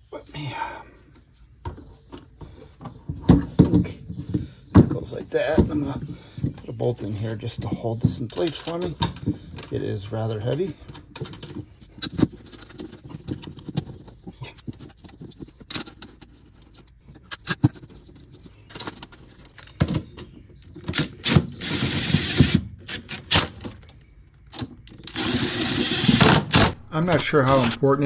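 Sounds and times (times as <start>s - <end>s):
metal bolts and tools rattling: 3.1s - 21.2s.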